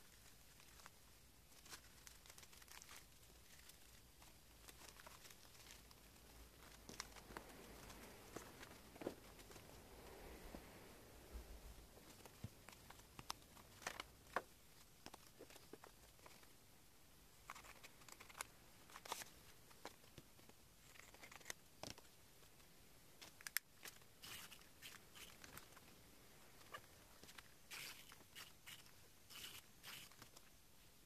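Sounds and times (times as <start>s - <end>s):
plastic package crinkling: 1.5s - 9.6s.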